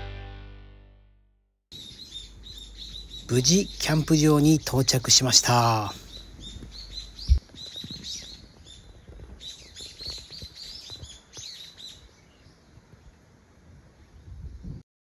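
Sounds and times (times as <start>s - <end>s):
small birds chirping: 1.7s - 13.2s.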